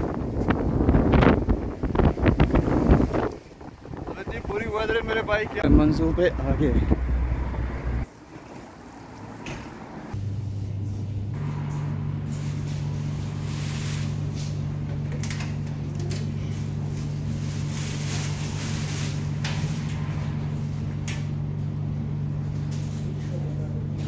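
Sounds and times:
electrical hum of machines: 0:07.8 - 0:24.0.

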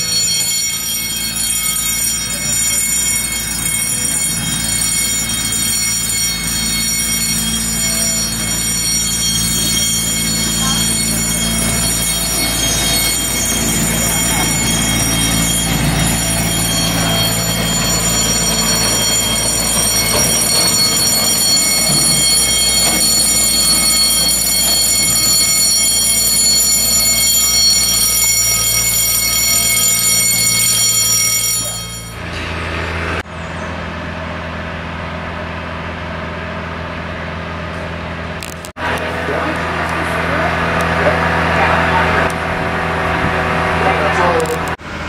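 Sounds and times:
miniature train rumbling and whining: 0:00.0 - 0:45.0.

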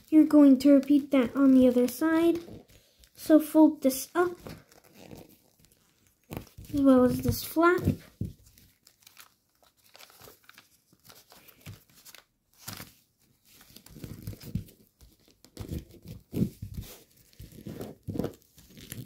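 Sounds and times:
foil paper crinkling: 0:04.1 - 0:19.0.

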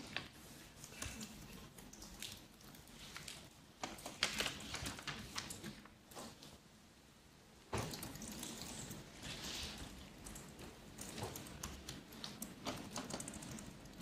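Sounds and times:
typing on computer keyboard: 0:10.3 - 0:14.0.

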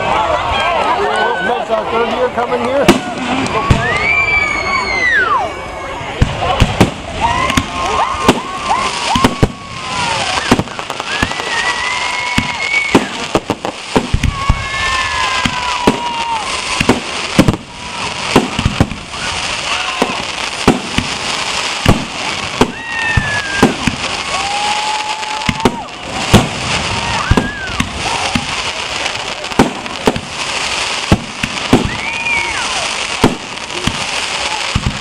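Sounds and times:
fireworks bursting with sharp bangs: 0:02.5 - 0:04.9, 0:06.0 - 0:35.0.

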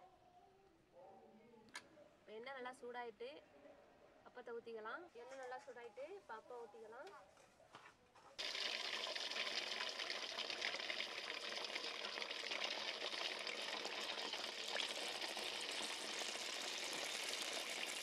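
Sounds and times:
batter sizzling in hot oil: 0:08.4 - 0:18.0.

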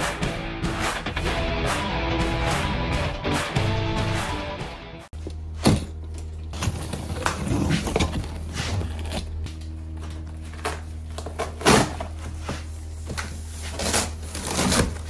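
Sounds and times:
cardboard scrapes and rustles: 0:06.6 - 0:09.3
knife slitting cardboard box: 0:06.6 - 0:09.3, 0:13.4 - 0:15.0.

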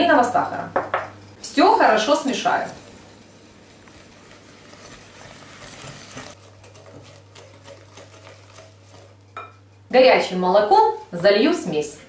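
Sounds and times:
whisk scraping glass bowl: 0:03.7 - 0:09.6
whisk tapping glass: 0:06.6 - 0:09.6.

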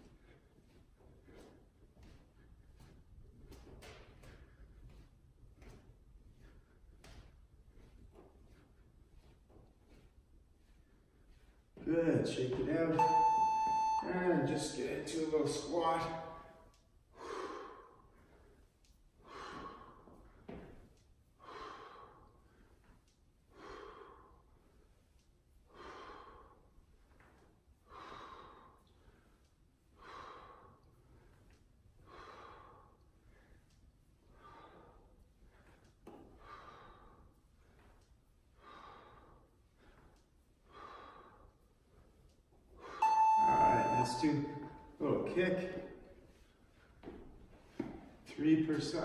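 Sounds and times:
man breathing: 0:00.0 - 0:11.8, 0:16.4 - 0:43.0.

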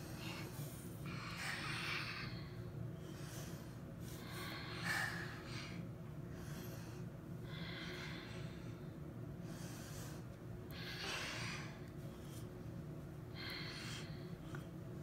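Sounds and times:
child breathing deeply: 0:00.0 - 0:12.5, 0:13.3 - 0:14.8
low room hum: 0:00.0 - 0:15.0.

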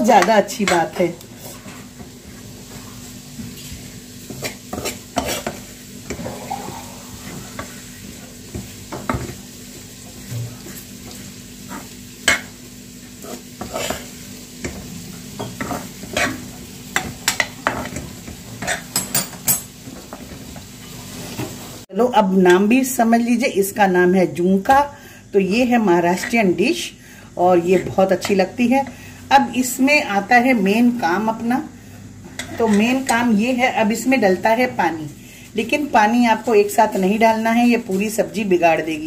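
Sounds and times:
spoon scraping dry mixture in pan: 0:00.1 - 0:06.2, 0:07.2 - 0:19.5.

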